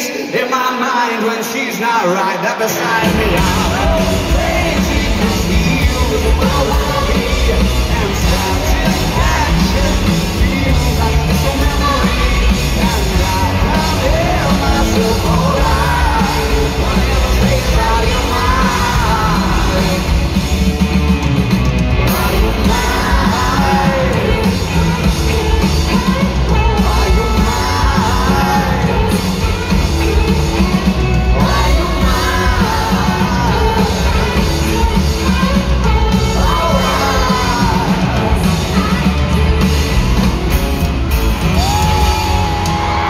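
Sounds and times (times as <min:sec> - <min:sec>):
man singing into microphone: 0:00.0 - 0:20.3, 0:22.1 - 0:29.6, 0:31.3 - 0:39.1
crowd yelling and singing: 0:00.0 - 0:43.0
rock band playing live: 0:00.0 - 0:43.0.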